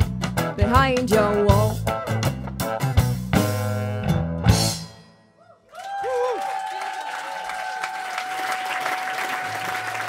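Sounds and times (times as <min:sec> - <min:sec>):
live rock band playing: 0:00.0 - 0:05.1
audience applauding and cheering: 0:05.7 - 0:10.0.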